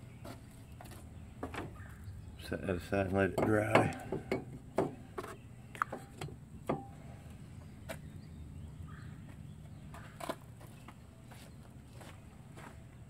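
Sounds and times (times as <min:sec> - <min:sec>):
tools knocking and clinking: 0:03.3 - 0:06.9.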